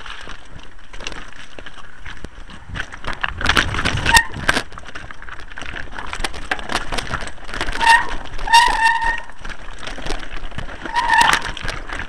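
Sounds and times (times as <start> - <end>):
bike rattling over rocks: 0.0 - 12.0
short squeals: 7.8 - 9.4, 10.8 - 11.6.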